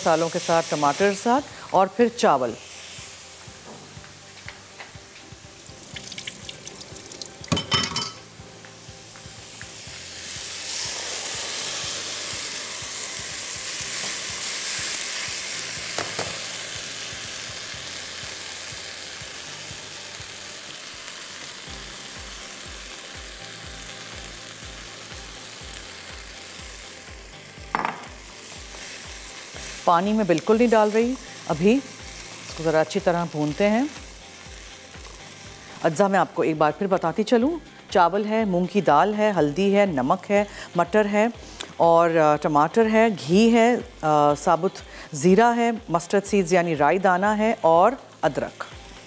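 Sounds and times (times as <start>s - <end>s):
food sizzling in a wok: 0.0s - 49.0s
utensils clattering: 7.5s - 8.2s
knock: 27.7s - 28.1s.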